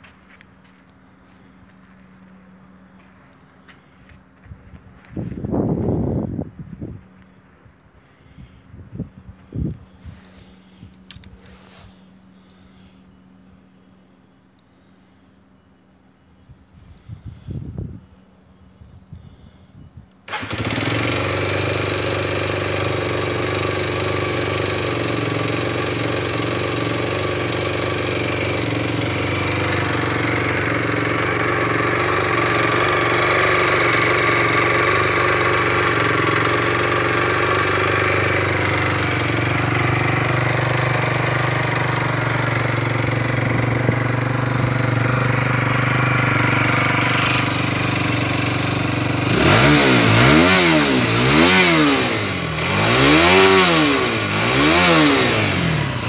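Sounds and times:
motorcycle engine starting and idling: 9.4 - 13.0, 20.1 - 56.0.

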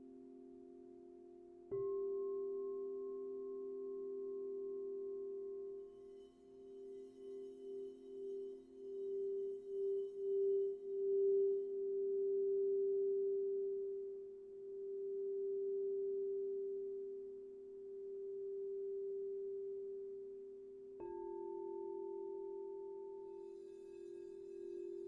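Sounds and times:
crystal singing bowl ringing: 1.9 - 17.2, 21.0 - 25.0.

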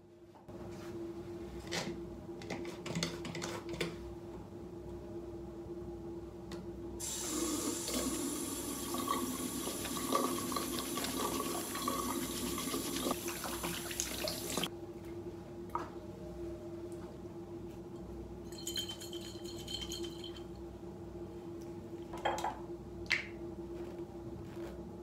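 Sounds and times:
water running from sink tap: 7.0 - 14.7.

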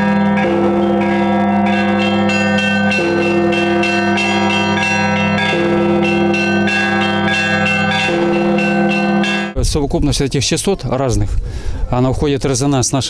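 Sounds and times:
large bell hum: 0.0 - 9.6
small church bells ringing: 0.0 - 9.6.

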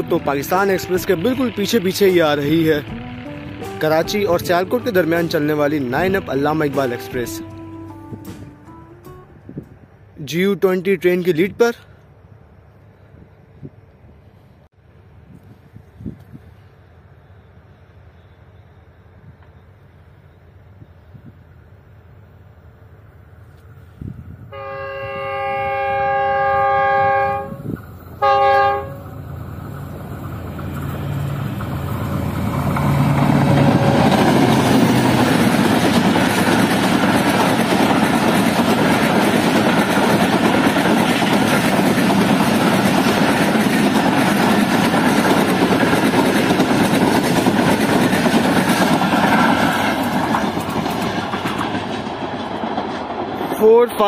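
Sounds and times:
train rumbling and clattering on rails: 0.0 - 54.0
locomotive air horn blasts: 24.5 - 29.2.

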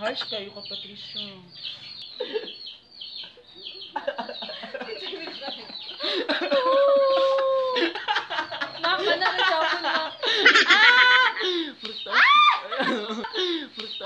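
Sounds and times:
young people laughing and shrieking: 3.9 - 13.9
long held cry: 6.4 - 8.0, 10.6 - 13.4.

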